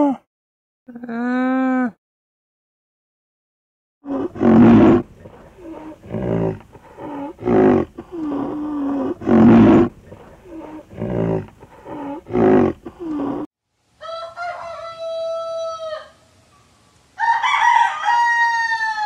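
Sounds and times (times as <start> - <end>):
large animal calling roughly: 4.0 - 13.5.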